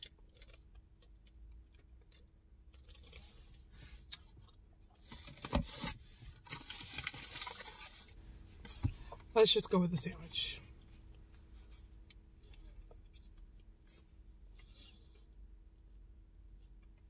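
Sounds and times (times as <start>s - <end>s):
paper wrapper crinkling: 6.4s - 8.2s.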